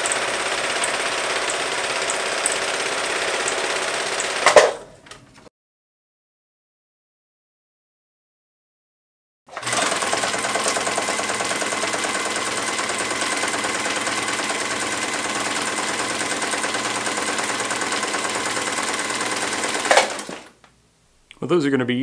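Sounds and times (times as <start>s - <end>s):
sewing machine running: 0.0s - 4.8s, 9.5s - 20.6s
sewing machine click: 9.5s - 20.5s.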